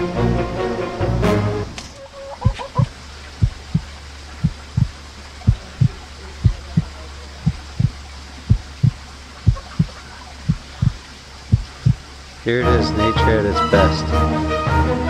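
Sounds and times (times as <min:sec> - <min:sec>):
low steady hum: 0:00.0 - 0:13.9
heartbeat double thump: 0:02.4 - 0:12.1.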